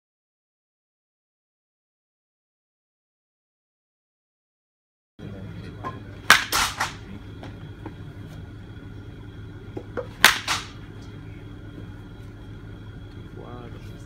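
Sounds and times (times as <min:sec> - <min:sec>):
bat cracking a ball: 0:05.8 - 0:08.0, 0:09.7 - 0:11.0.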